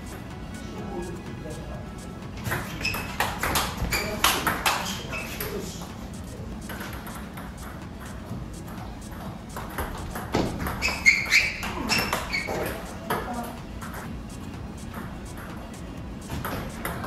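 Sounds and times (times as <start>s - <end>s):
table tennis ball clicks: 2.5s - 5.6s, 6.6s - 15.6s, 16.3s - 17.0s.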